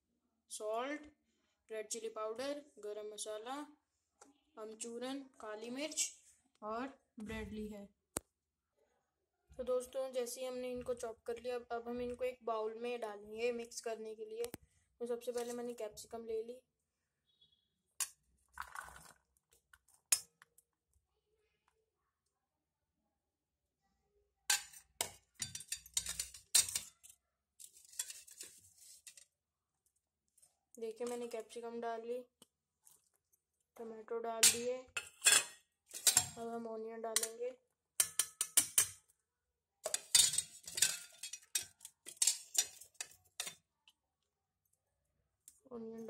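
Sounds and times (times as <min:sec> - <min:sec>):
metal plate clinking on steel bowl: 0:24.5 - 0:26.9, 0:34.4 - 0:36.4, 0:38.0 - 0:39.0, 0:39.9 - 0:43.6
soft scraping rustle: 0:27.6 - 0:29.3.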